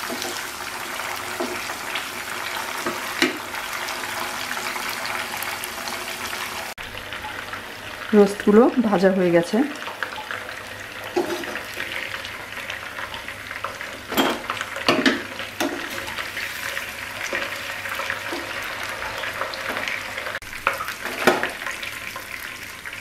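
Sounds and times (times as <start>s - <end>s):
chicken sizzling in oil: 0.0s - 23.0s.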